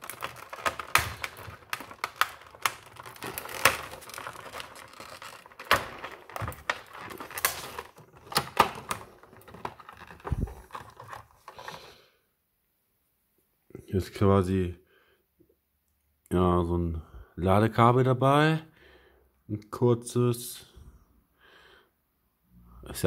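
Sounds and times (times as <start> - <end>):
plastic packaging crinkling: 0.0 - 11.9.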